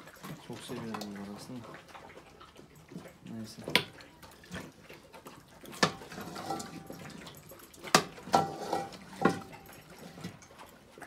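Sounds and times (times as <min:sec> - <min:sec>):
fork clanking on metal pot: 0:05.8 - 0:09.8.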